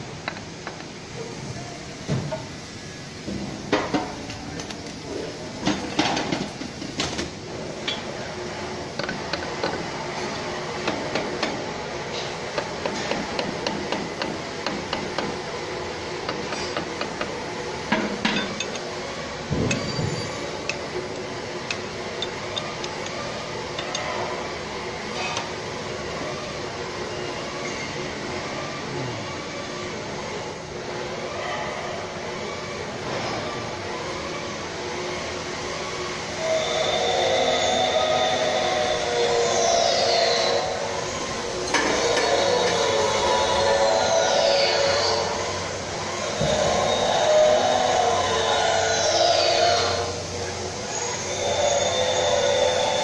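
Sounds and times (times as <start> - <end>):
metal knocks and clinks: 18.2 - 18.8.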